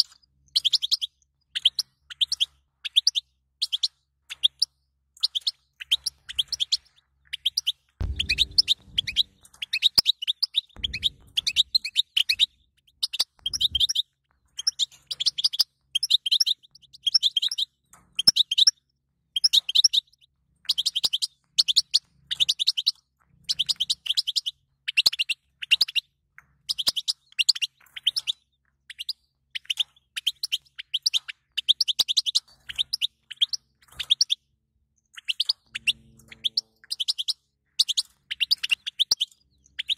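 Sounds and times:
finch twittering: 0.0s - 18.7s, 26.7s - 34.4s, 35.2s - 39.9s
low thuds: 8.0s - 9.5s, 10.8s - 12.6s.

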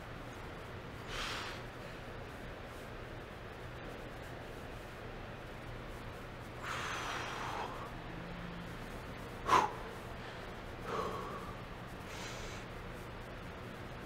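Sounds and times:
man breathing hard: 6.6s - 8.0s, 9.4s - 12.7s.

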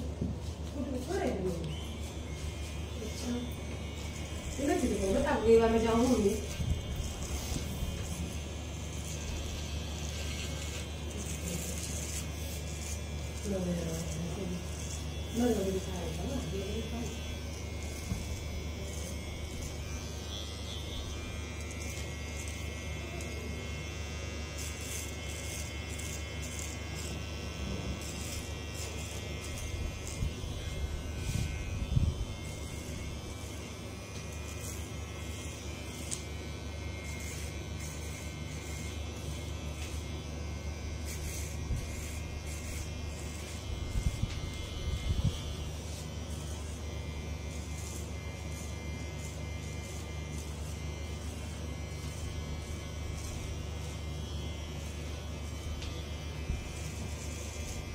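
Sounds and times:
electric hair clipper buzzing: 0.0s - 57.9s.

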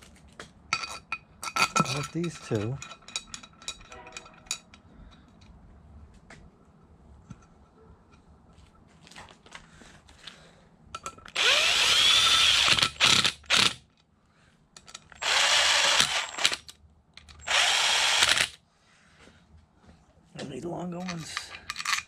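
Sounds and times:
cordless drill whining: 11.3s - 13.8s, 15.2s - 16.6s, 17.4s - 18.6s.

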